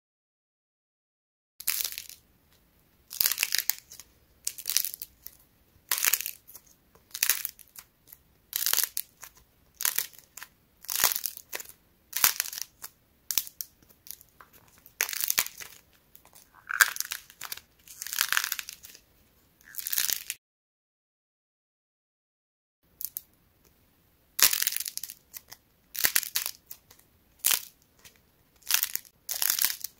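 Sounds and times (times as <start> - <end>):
dried clay cracking: 3.2 - 19.0.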